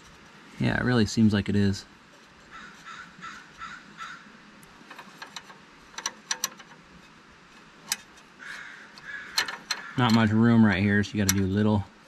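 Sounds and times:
faint bird calls: 0:02.4 - 0:04.4, 0:08.4 - 0:10.3
wrench clicking on metal: 0:04.8 - 0:06.8, 0:09.0 - 0:10.3, 0:11.2 - 0:11.6.

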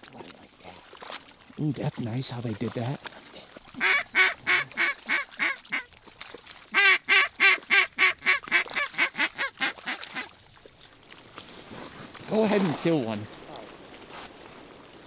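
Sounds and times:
duck quacking: 0:03.8 - 0:05.9, 0:06.7 - 0:10.3.

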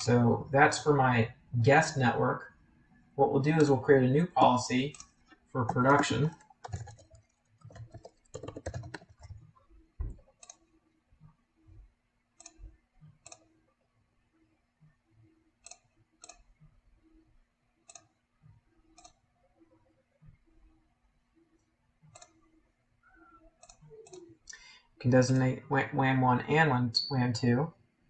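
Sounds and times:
faint steady hum: 0:00.0 - 0:28.0
computer keyboard typing: 0:04.8 - 0:10.8, 0:19.0 - 0:19.2, 0:22.1 - 0:22.4, 0:23.6 - 0:24.4.

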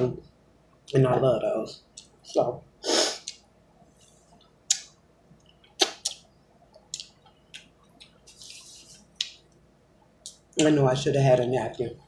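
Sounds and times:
lip smacks: 0:03.1 - 0:03.5, 0:04.4 - 0:08.4
wet mouth clicks: 0:03.1 - 0:03.5, 0:04.4 - 0:08.3.

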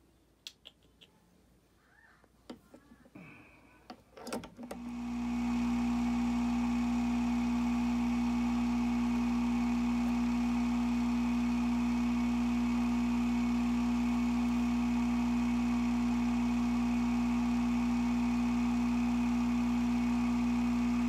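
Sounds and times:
electric motor humming: 0:04.7 - 0:21.0.

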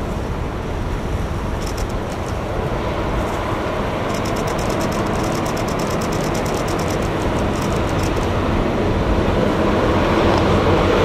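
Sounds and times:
rapid high clicking: 0:01.6 - 0:02.4, 0:04.1 - 0:08.4.

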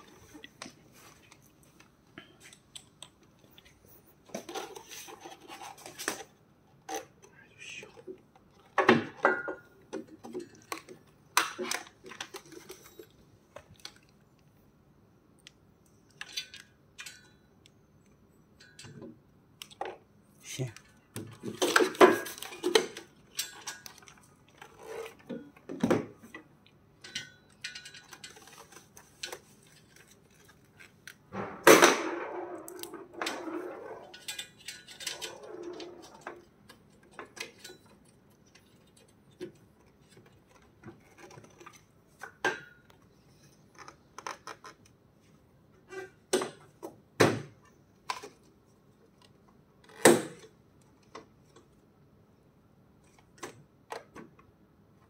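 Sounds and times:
metal frame parts clattering: 0:27.0 - 0:30.4, 0:31.4 - 0:36.3.

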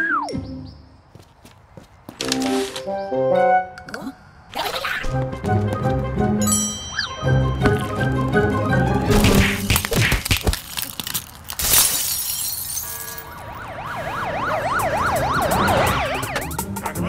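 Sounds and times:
scuffling knocks: 0:07.6 - 0:08.4
cartoon police siren wailing: 0:13.2 - 0:17.0.

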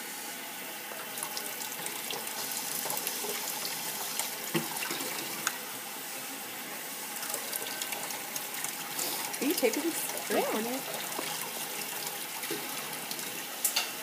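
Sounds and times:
faucet running into glass: 0:07.2 - 0:14.0.

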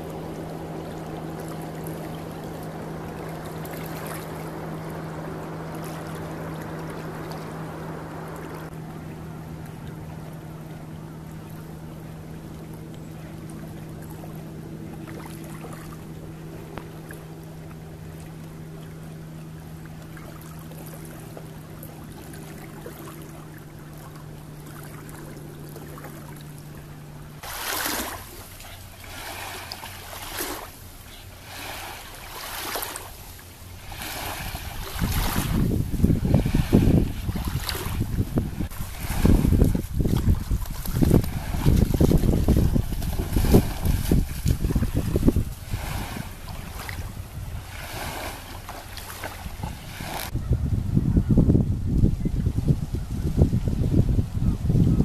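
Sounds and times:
steady low hum: 0:00.0 - 0:55.0
water ambience: 0:00.0 - 0:55.0
wind rumbling on microphone: 0:33.8 - 0:55.0.

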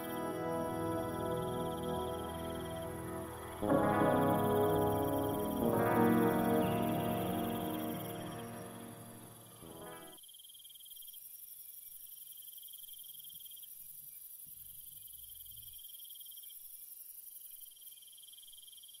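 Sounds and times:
background music: 0:00.0 - 0:10.2.

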